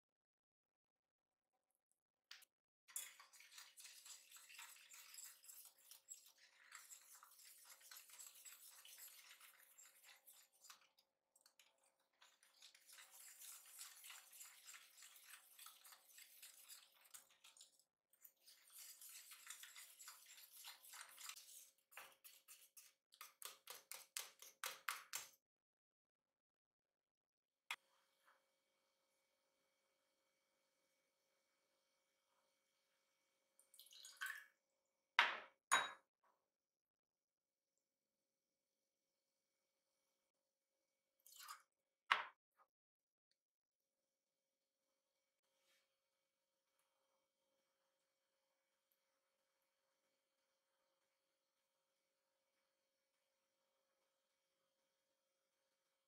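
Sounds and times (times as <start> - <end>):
whisk scraping metal pot: 2.9 - 10.8, 12.2 - 24.5.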